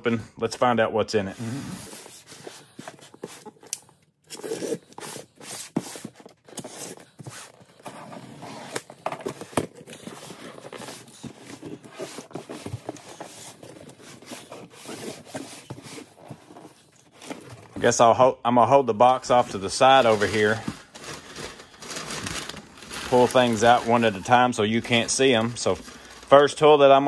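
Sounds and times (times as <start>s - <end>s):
cardboard box scraping and rustling: 4.3s - 17.8s, 19.3s - 26.4s.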